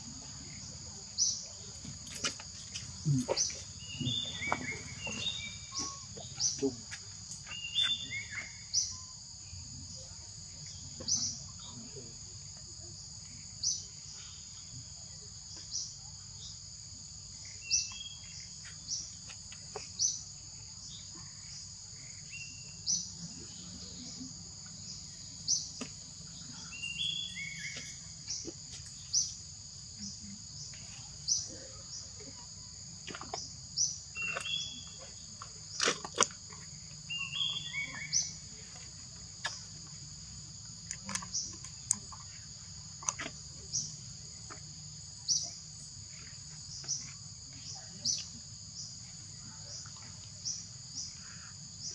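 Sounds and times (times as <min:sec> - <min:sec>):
bird chirps: 0:02.2 - 0:09.2, 0:33.4 - 0:35.2, 0:36.6 - 0:39.6.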